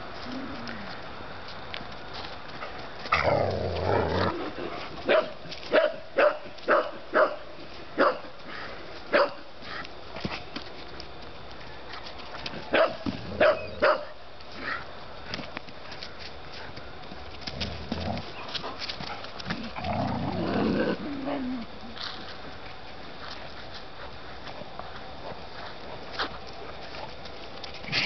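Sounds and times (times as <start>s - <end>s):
dogs barking: 5.1s - 8.3s, 9.1s - 9.4s, 12.7s - 14.2s.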